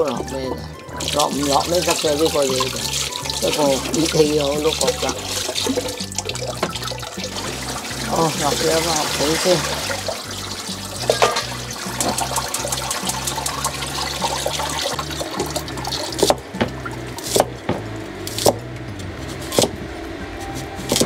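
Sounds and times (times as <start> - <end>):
water splashing into a pot: 0.6 - 17.6
cleaver chopping on wooden board: 16.2 - 18.6, 19.5 - 19.8.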